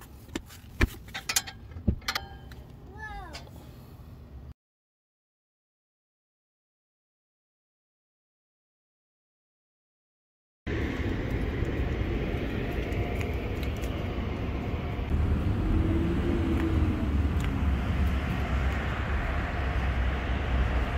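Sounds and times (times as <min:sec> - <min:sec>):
outdoor background rumble: 0:00.0 - 0:04.5, 0:10.7 - 0:20.9.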